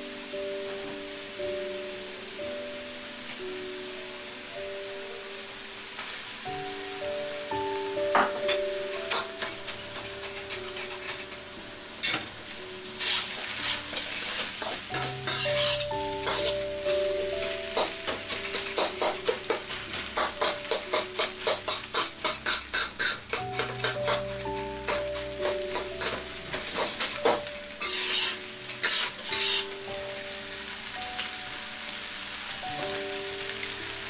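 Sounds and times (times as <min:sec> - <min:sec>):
food sizzling in a wok: 0:00.0 - 0:34.0
metal spatula scraping a wok: 0:09.1 - 0:11.4, 0:12.9 - 0:17.1, 0:17.7 - 0:29.8.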